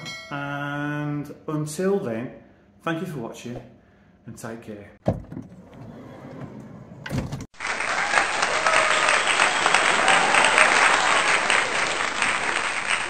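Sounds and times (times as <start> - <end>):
applause: 7.5 - 13.0.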